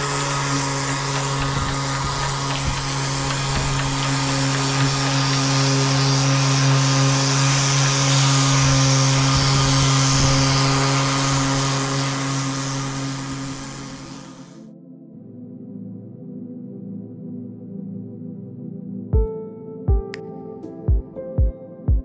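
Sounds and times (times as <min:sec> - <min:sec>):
disc sander motor humming: 0:00.0 - 0:14.6
sanding disc scraping paint: 0:00.0 - 0:14.6.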